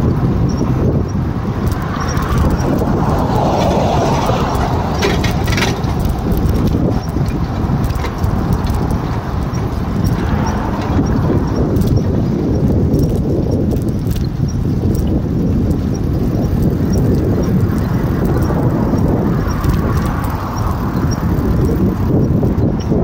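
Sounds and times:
bicycle tyre rumble on pavement: 0.0 - 23.0
wind buffeting microphone: 0.0 - 23.0
faint regular ticking: 4.5 - 22.4.

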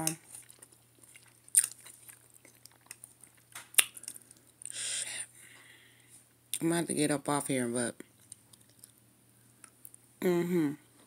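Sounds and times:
person chewing: 0.0 - 5.1, 8.1 - 9.0.

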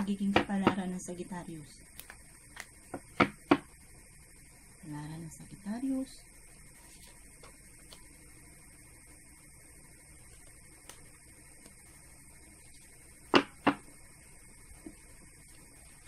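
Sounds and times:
electrical hum and hiss: 0.0 - 16.0
cards being shuffled: 2.0 - 2.8, 6.8 - 8.1, 10.2 - 11.8.

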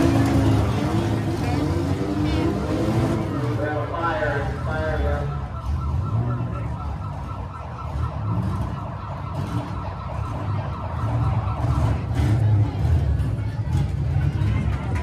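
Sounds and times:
car engines rumbling: 0.0 - 15.0.

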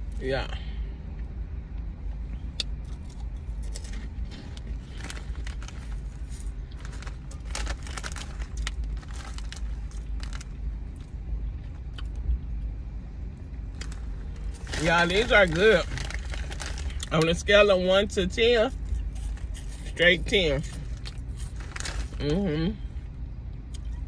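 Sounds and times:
low steady rumble: 0.0 - 24.0
fries being chewed: 2.6 - 12.7, 13.7 - 17.4, 18.7 - 22.4
foil chip bag crinkling: 2.9 - 11.1, 13.7 - 17.5, 18.5 - 22.4.

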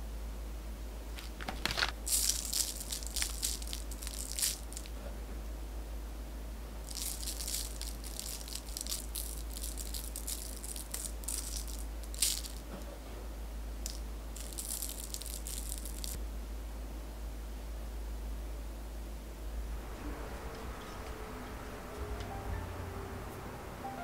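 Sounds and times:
powder sifting rattle: 1.2 - 5.0, 6.8 - 13.0, 14.4 - 16.2.

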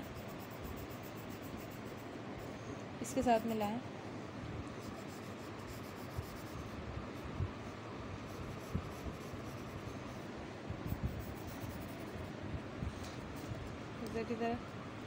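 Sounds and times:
pencil scratching on paper: 0.0 - 2.1, 4.8 - 6.8, 8.2 - 10.3, 10.9 - 12.3.

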